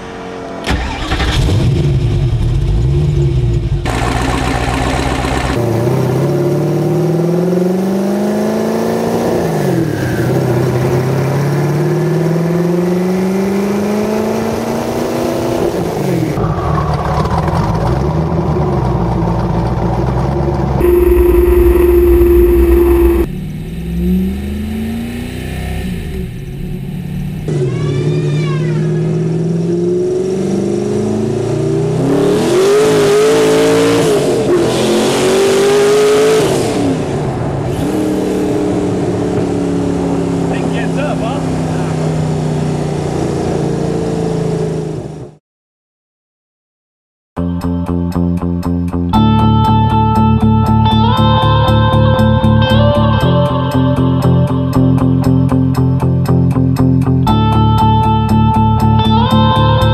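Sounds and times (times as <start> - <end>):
car engine revving: 0.0 - 45.4.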